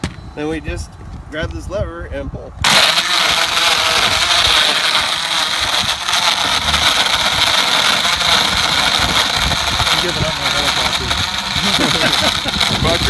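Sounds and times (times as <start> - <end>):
blender motor churning ice: 2.6 - 13.0.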